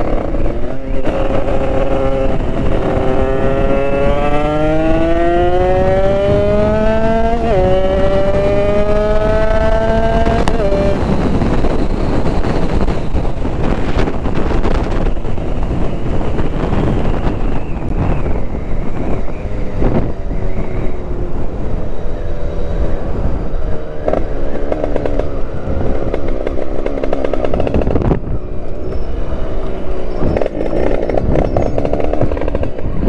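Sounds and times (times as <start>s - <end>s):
two-stroke motorbike engine revving: 0.0s - 14.7s
wind noise on microphone: 0.0s - 33.0s.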